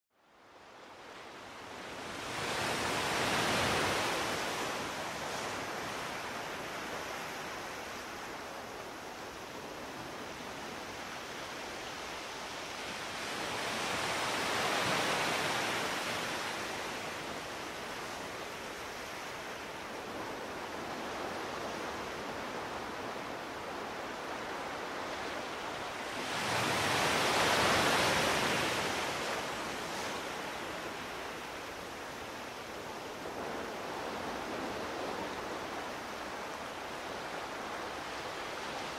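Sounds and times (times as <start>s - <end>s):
ocean waves breaking: 22.2s - 31.5s.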